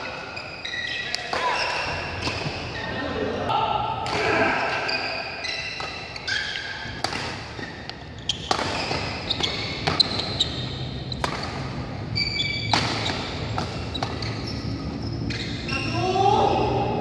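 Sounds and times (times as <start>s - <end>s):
shoes squeaking on court: 0.0s - 3.0s, 4.5s - 15.9s
racket hitting shuttlecock: 4.0s - 14.4s.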